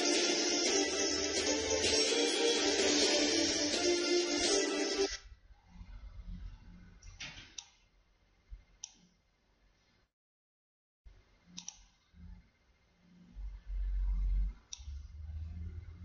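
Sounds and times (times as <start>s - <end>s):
computer mouse clicks: 7.0s - 7.8s, 8.8s - 9.1s, 11.6s - 12.0s, 14.7s - 15.0s.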